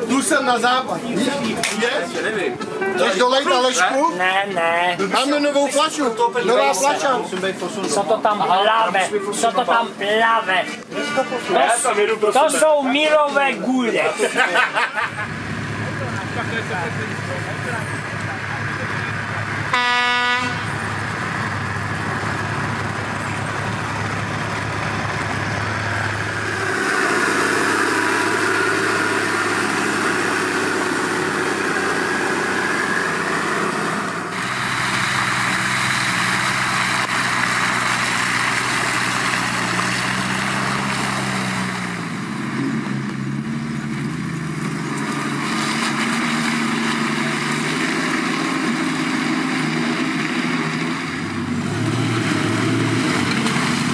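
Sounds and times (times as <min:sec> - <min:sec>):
off-road engines running: 0:00.0 - 0:53.9
horn toot: 0:19.7 - 0:20.8.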